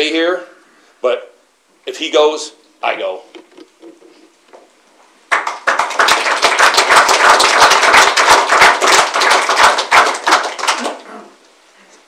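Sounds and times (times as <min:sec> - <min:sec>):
audience applauding: 0:05.3 - 0:11.1.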